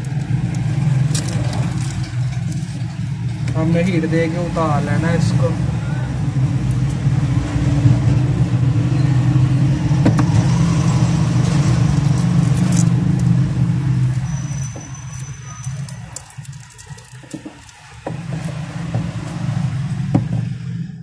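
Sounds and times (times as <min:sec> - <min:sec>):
small parts clicking and tapping: 0:14.0 - 0:18.5.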